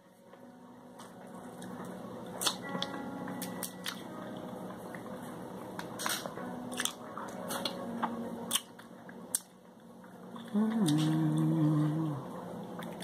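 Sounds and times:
person humming two notes: 10.5s - 12.3s.

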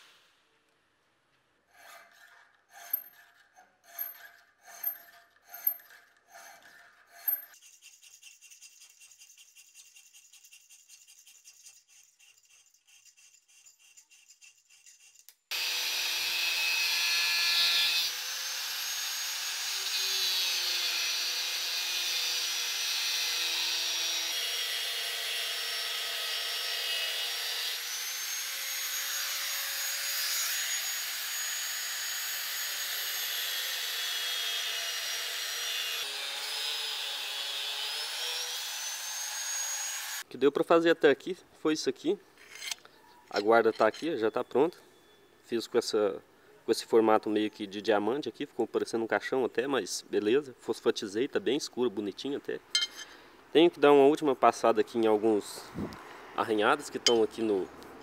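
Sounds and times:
hand file rasping on steel: 1.7s - 15.7s, 42.4s - 44.1s
angle grinder on steel: 1.7s - 40.3s, 42.4s - 44.2s, 52.8s - 53.1s, 57.1s - 57.6s.

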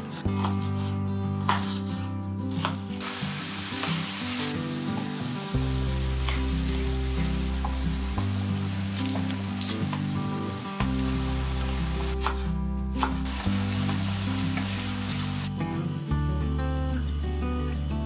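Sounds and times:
knife cutting on wooden board: 0.0s - 2.9s
background music: 0.0s - 18.0s
food sizzling in a frying pan: 3.0s - 12.2s, 13.2s - 15.5s.

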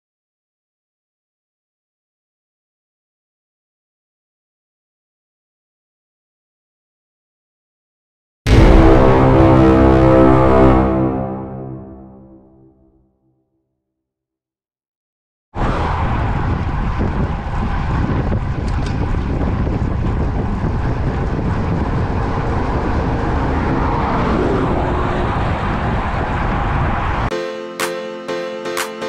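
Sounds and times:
bike tyre road noise: 15.6s - 27.3s
wind rushing over microphone: 15.6s - 27.3s.

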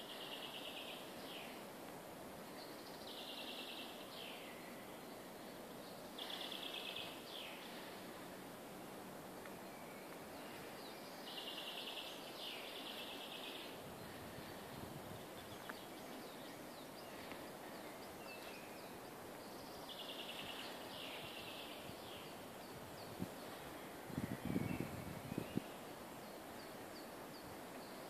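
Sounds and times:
steady outdoor hiss: 0.0s - 28.0s
songbird singing a fast trill: 2.6s - 5.2s, 9.6s - 13.8s, 15.2s - 28.0s.

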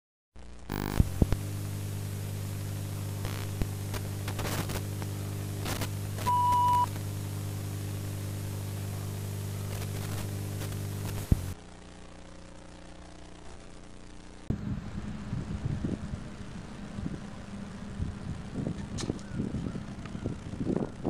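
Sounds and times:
static hiss with crackles: 0.4s - 19.2s
electrical hum: 0.4s - 21.0s
short steady beep: 6.2s - 6.9s.

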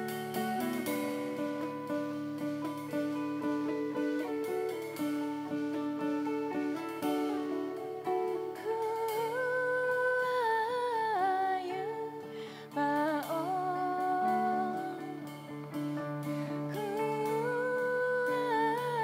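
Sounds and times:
guitars playing: 0.0s - 19.0s
plucked lute: 0.0s - 19.0s
woman singing: 6.5s - 19.0s.

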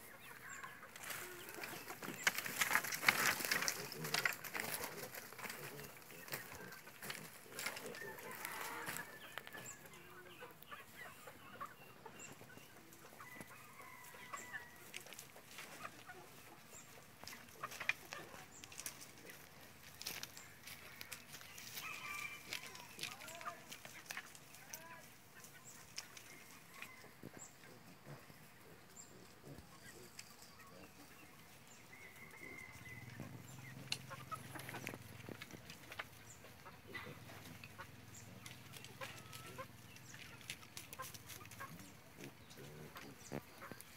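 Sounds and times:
chickens clucking: 0.0s - 43.9s
rustles: 0.0s - 43.9s
drawn-out high chicken call: 5.9s - 12.2s, 12.8s - 16.7s, 20.1s - 28.6s, 31.5s - 42.4s.

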